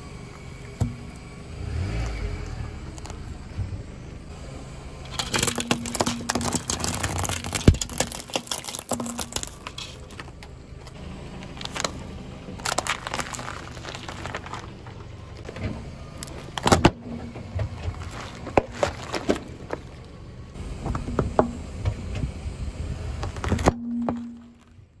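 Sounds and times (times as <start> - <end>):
car engine running low: 0.0 - 25.0
car tyre crushing objects: 0.0 - 25.0
crackling and snapping: 1.9 - 3.3, 5.0 - 20.2.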